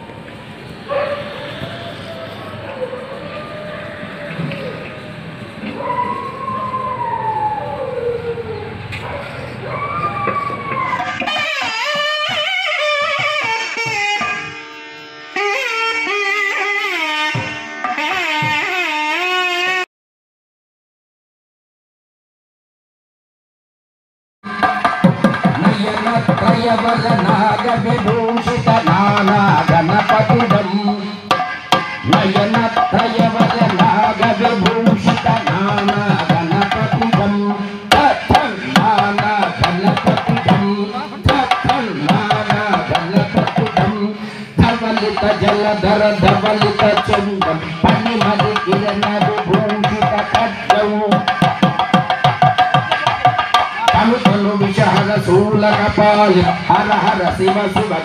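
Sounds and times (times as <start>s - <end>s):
fast hand drum strokes: 24.5s - 58.0s.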